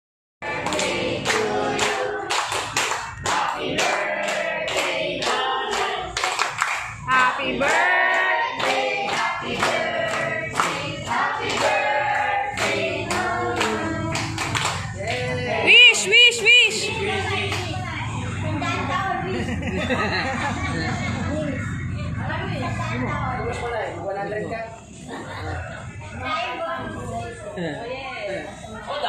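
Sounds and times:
people singing a birthday song: 0:00.4 - 0:23.9
people clapping in time: 0:00.5 - 0:07.0, 0:07.6 - 0:11.8, 0:12.6 - 0:15.3.

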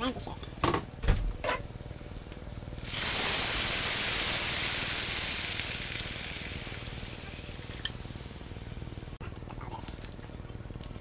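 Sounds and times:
water sizzling in hot pan: 0:02.6 - 0:09.2.

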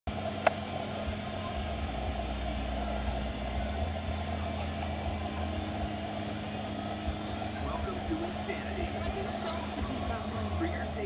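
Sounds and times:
machinery humming: 0:00.1 - 0:11.0.

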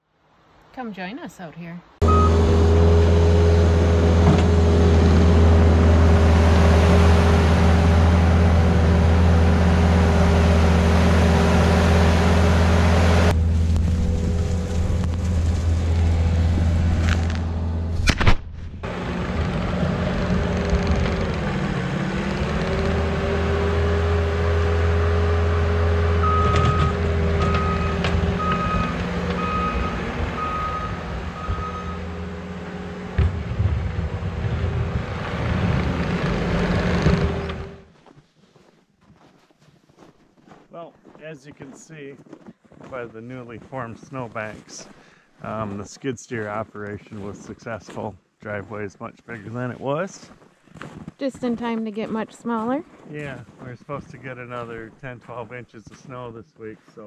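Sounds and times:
reversing alarm beeping: 0:02.0 - 0:02.7, 0:26.2 - 0:32.2
skid steer engine running: 0:02.0 - 0:18.1, 0:18.8 - 0:37.9.

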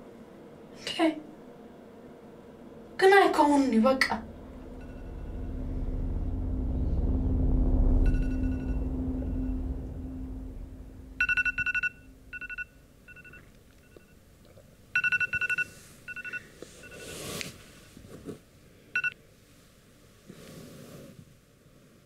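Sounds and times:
low hum: 0:01.6 - 0:15.0
electronic telephone ringing: 0:11.3 - 0:14.0, 0:15.0 - 0:17.1.

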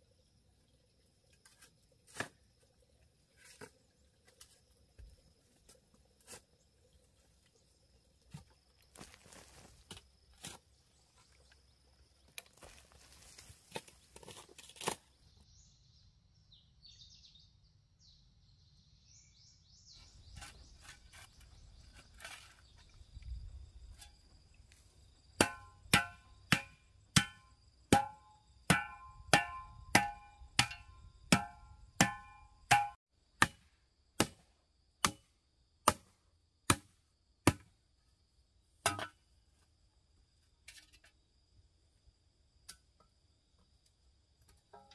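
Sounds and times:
tool striking wood: 0:25.4 - 0:33.6.

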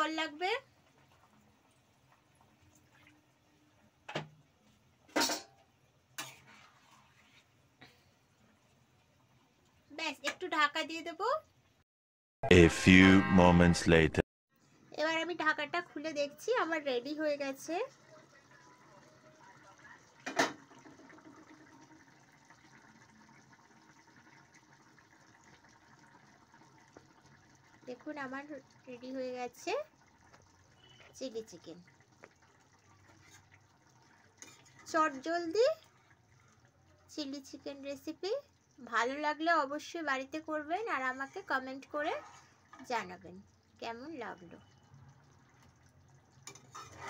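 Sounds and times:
gravy bubbling in a pan: 0:00.0 - 0:10.2, 0:15.4 - 0:47.0.

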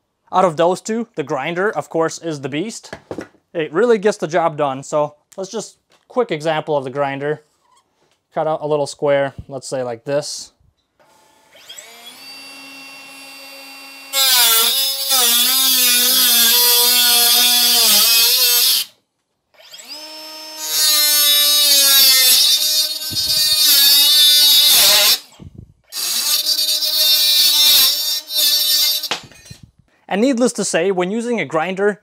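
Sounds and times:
angle grinder cutting sheet metal: 0:11.5 - 0:18.9, 0:19.6 - 0:29.6.

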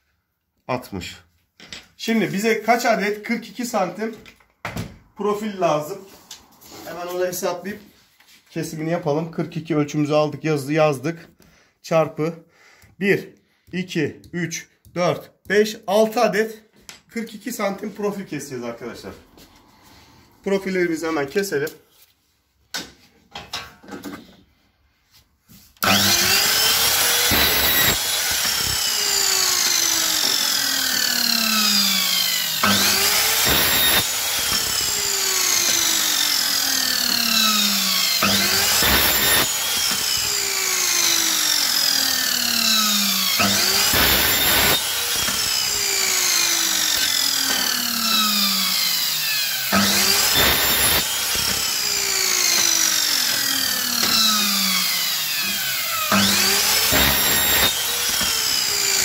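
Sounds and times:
miter saw cutting metal: 0:25.8 - 0:59.0.

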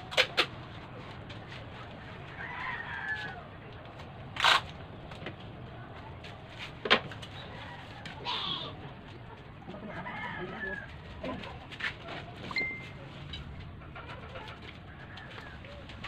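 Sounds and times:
rooster crowing: 0:02.4 - 0:03.4, 0:09.7 - 0:11.0.

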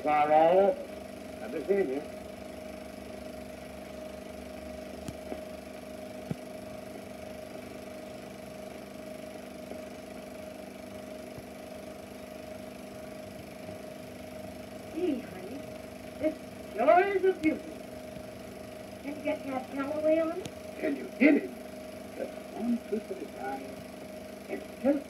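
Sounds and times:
film projector hum and hiss: 0:00.0 - 0:25.0.

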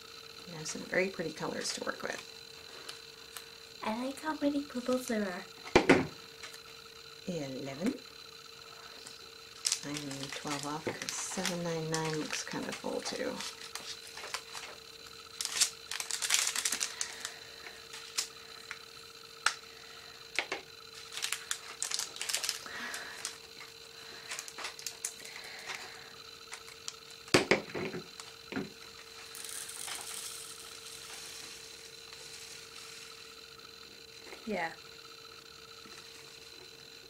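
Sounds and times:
resin beads rattling: 0:09.5 - 0:18.9, 0:20.9 - 0:23.7, 0:28.1 - 0:33.6.

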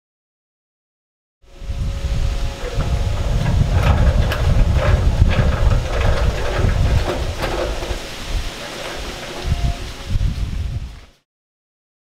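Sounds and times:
wind buffeting microphone: 0:01.5 - 0:11.1
light clicks and rustles: 0:02.6 - 0:10.1.

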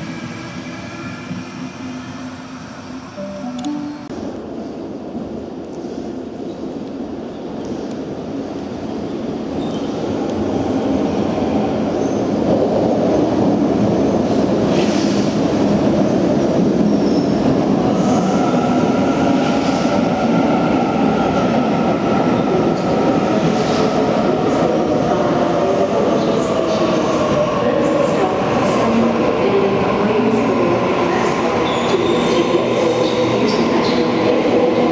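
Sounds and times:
train wheel squeals: 0:31.6 - 0:32.4.

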